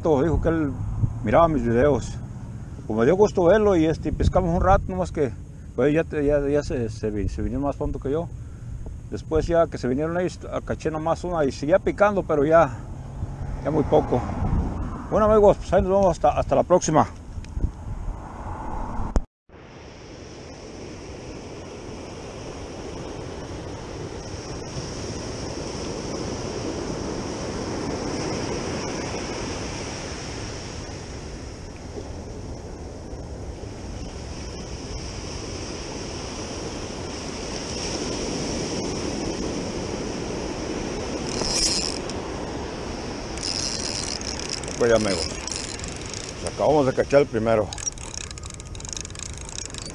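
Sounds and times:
ocean surf breaking on beach: 0.0s - 8.3s, 19.5s - 49.9s.

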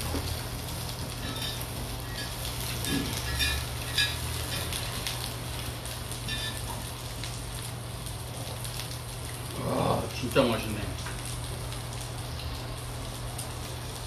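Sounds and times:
chicken sizzling on grill pan: 0.0s - 14.0s.

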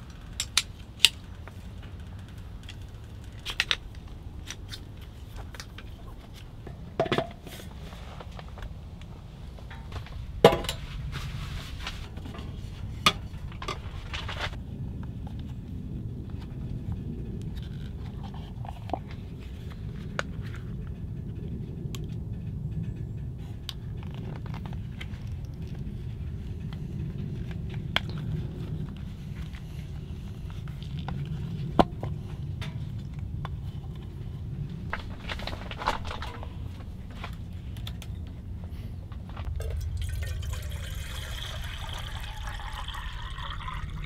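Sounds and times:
low rumble: 0.0s - 44.0s
camp gear clicking and knocking: 6.7s - 7.7s, 34.9s - 38.2s.

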